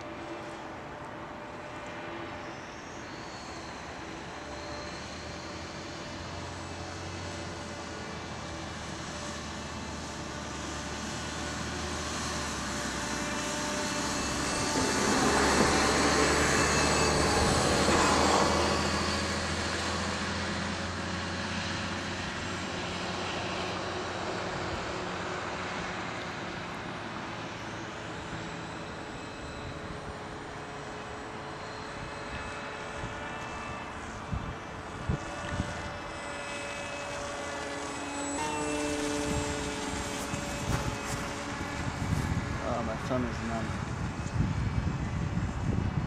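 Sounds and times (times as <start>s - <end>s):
model airplane motor buzzing: 0.0s - 46.0s.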